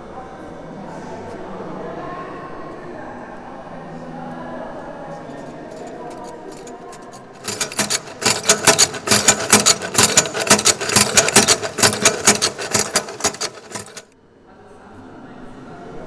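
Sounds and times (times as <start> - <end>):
machine sculpture clattering: 5.4 - 14.1.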